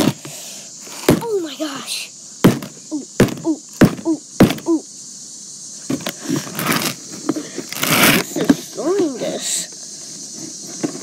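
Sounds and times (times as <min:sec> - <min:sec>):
hammer striking a box: 0:02.4 - 0:04.6.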